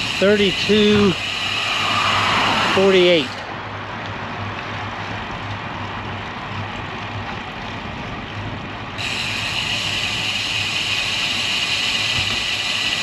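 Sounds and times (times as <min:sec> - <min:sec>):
steady high hiss: 0:00.0 - 0:03.3, 0:09.0 - 0:13.0
bike tyres on asphalt: 0:00.0 - 0:13.0.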